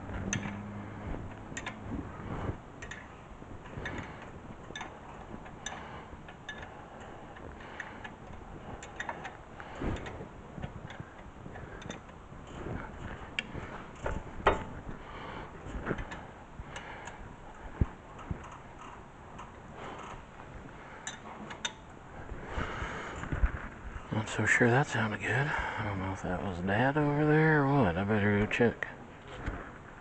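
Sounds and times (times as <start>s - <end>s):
metallic clicks of hand tools: 0.2s - 0.7s.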